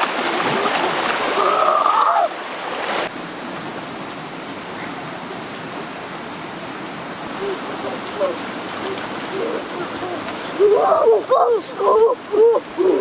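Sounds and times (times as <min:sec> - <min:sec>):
water splashing: 0:00.0 - 0:03.2, 0:07.2 - 0:13.0
river water rushing over rocks: 0:00.0 - 0:13.0.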